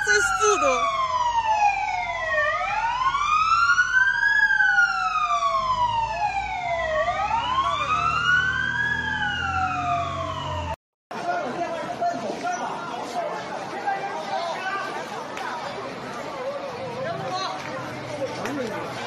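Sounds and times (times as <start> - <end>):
fire engine sirens wailing: 0.0 - 10.8
truck engines rumbling: 0.0 - 10.8.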